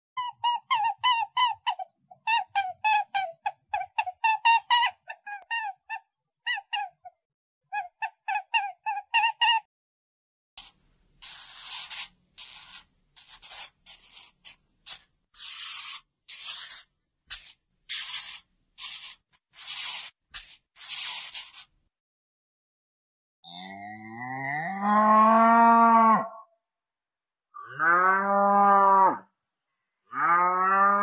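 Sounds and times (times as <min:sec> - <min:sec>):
rabbit squeaking: 0:00.2 - 0:07.1, 0:07.7 - 0:09.7
hamster hissing: 0:10.6 - 0:21.7.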